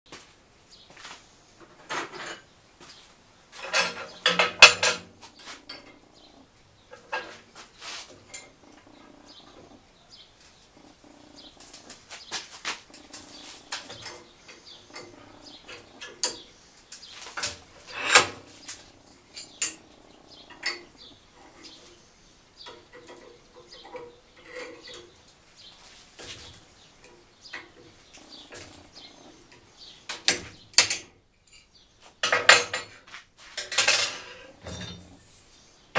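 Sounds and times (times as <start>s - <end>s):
steel rods clanking on metal: 3.6s - 6.2s, 12.8s - 21.9s, 30.1s - 33.0s, 33.6s - 35.2s.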